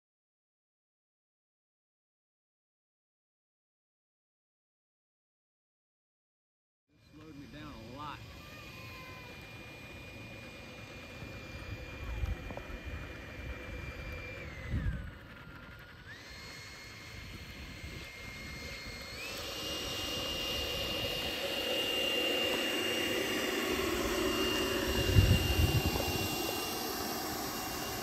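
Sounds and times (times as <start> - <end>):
electric ducted fan whine: 7.0 - 28.0.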